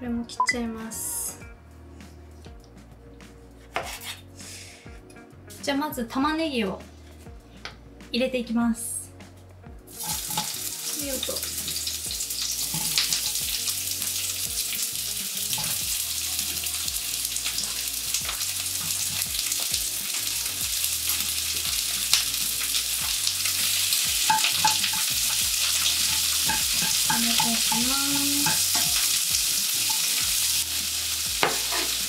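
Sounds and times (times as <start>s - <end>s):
onions sizzling in hot oil: 9.9s - 32.0s.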